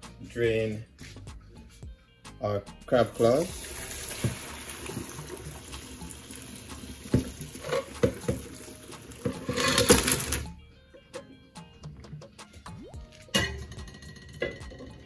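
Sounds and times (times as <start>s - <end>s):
water pouring into a colander: 3.1s - 10.4s.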